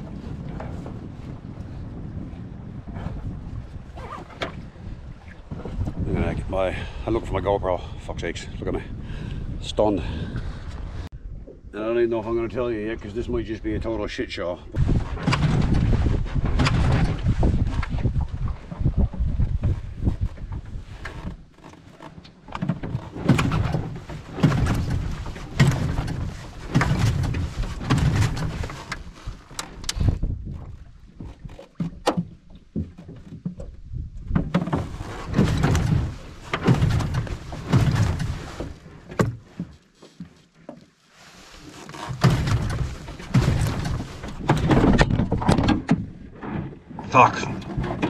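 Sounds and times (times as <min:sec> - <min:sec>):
outboard motor starter cord pulls: 0:41.7 - 0:46.8.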